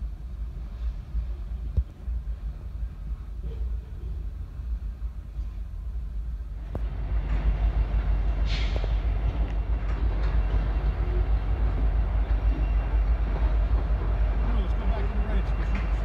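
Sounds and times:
diesel locomotive rumble: 0.0s - 16.0s
brief hiss: 8.4s - 9.0s.

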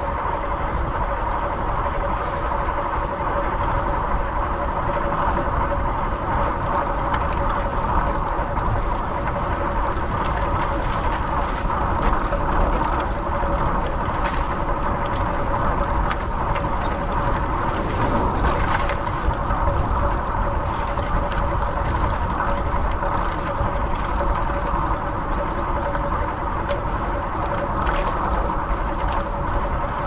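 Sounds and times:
road noise: 0.0s - 30.0s
wind rushing: 17.5s - 20.6s.

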